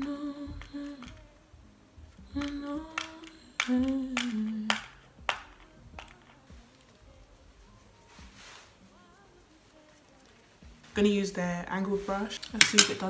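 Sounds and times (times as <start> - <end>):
woman humming a slow tune: 0.0 - 4.9
sharp clicks and taps: 2.1 - 7.0.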